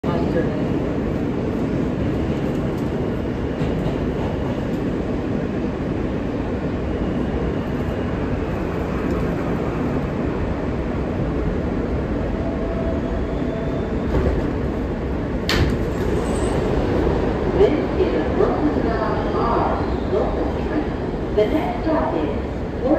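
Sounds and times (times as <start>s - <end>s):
subway car rumbling in tunnel: 0.0s - 22.9s.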